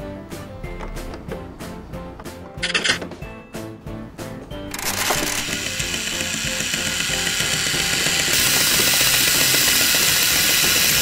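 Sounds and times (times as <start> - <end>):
toy train motor whirring: 4.7 - 11.0.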